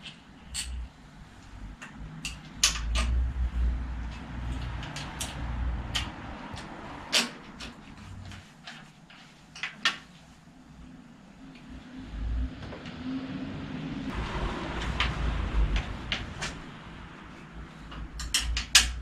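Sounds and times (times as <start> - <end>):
bicycle parts clicking and knocking: 0.0 - 10.2, 17.8 - 19.0
low rumble: 13.5 - 17.9.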